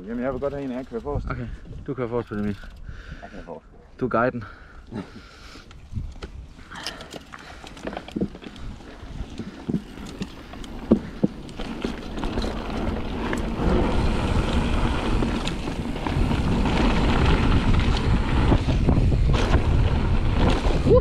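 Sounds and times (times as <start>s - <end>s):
bike tyres on loose gravel: 4.4s - 21.0s
wind noise on microphone: 5.7s - 6.6s, 8.1s - 21.0s
bike knocks and rattles: 6.1s - 20.9s.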